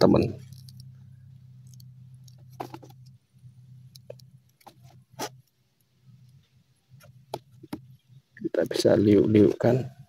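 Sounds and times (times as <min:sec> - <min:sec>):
low steady hum: 0:00.0 - 0:10.0
wire clicking: 0:03.8 - 0:06.4.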